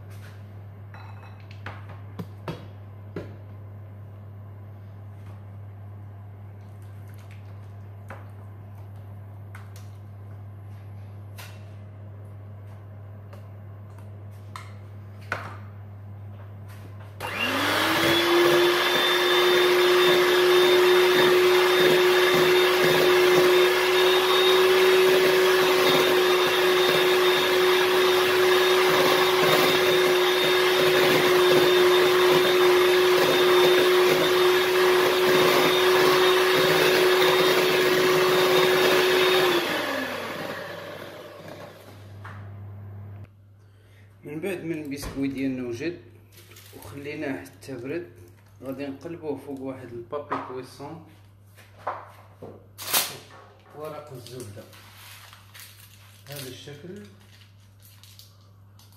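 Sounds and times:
electric mixer whipping cream: 0:17.2 - 0:43.1.

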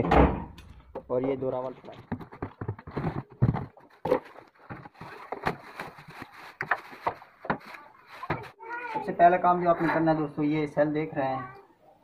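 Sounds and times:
knocks and thumps: 0:00.0 - 0:05.9
cardboard and plastic rustling: 0:01.1 - 0:10.1.

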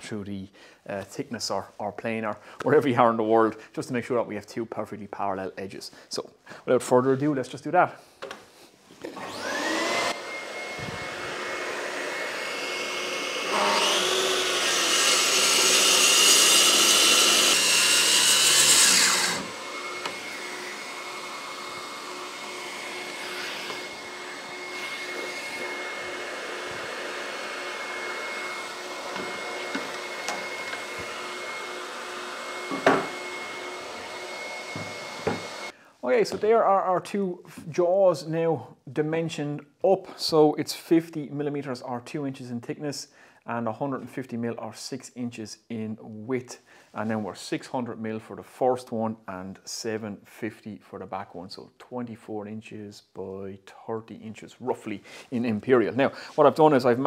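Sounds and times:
track saw cutting wood: 0:09.1 - 0:35.7
dust extractor whining: 0:09.1 - 0:35.8
knock: 0:32.7 - 0:33.1, 0:34.8 - 0:35.4.

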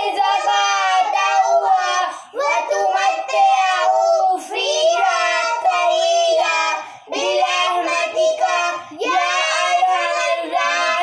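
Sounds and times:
children singing together: 0:00.0 - 0:11.0.

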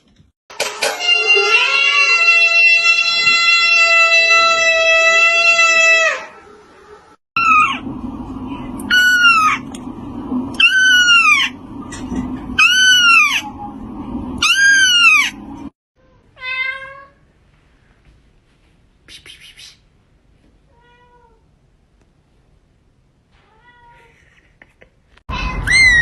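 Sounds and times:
cat meowing high-pitched: 0:01.0 - 0:06.3, 0:25.3 - 0:26.0
cat lower meow: 0:01.2 - 0:06.3
low steady hum: 0:06.5 - 0:16.1.

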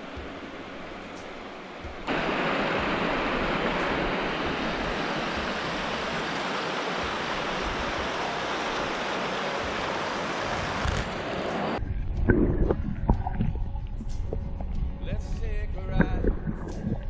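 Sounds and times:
river rapids rushing over rocks: 0:00.1 - 0:11.8.

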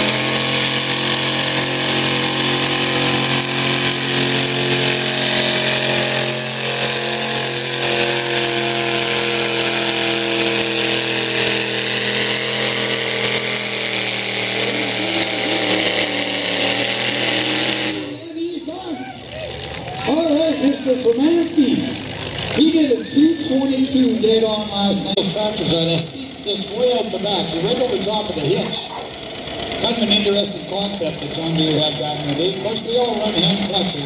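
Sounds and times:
tractor engine running hard: 0:00.0 - 0:34.0.

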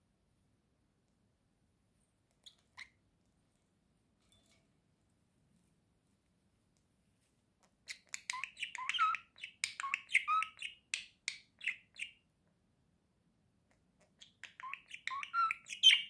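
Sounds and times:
budgerigar chirping and warbling: 0:07.9 - 0:10.9, 0:11.6 - 0:12.2, 0:14.2 - 0:16.0.

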